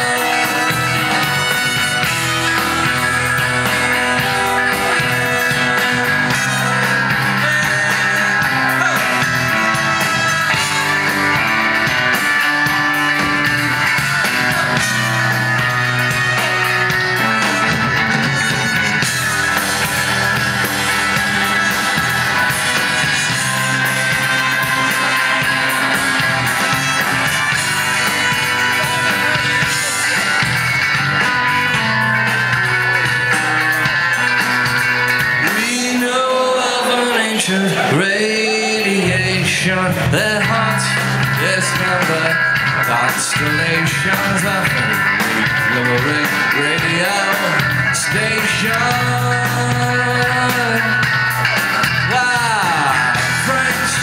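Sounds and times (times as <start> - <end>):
trumpet: 0.0 - 5.4
rock band playing: 0.0 - 54.0.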